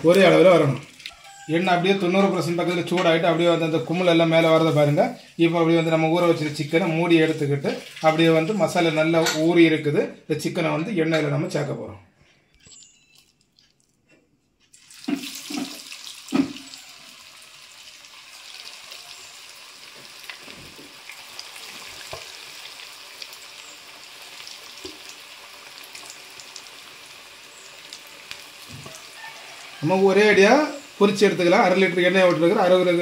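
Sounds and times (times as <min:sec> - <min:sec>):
deep-frying sizzle: 0:00.0 - 0:09.5, 0:14.8 - 0:33.0
pieces plopping into oil: 0:14.9 - 0:16.8.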